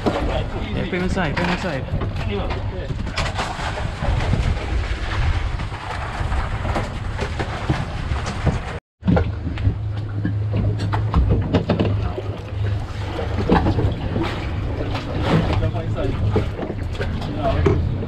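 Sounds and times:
boat engine running: 0:00.0 - 0:18.0
water noise: 0:00.0 - 0:18.0
wind: 0:00.0 - 0:18.0.

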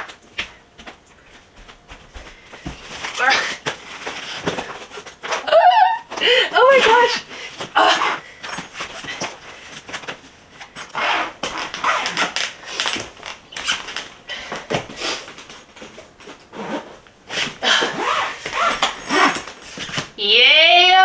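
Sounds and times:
suitcase handling noise: 0:07.6 - 0:20.2
suitcase zipper: 0:10.8 - 0:12.4, 0:16.5 - 0:20.0.

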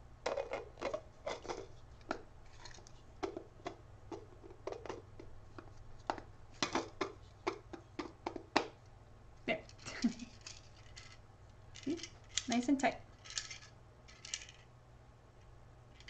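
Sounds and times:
plastic pieces clicking and scraping: 0:09.7 - 0:11.2, 0:11.8 - 0:12.6, 0:13.2 - 0:14.7.

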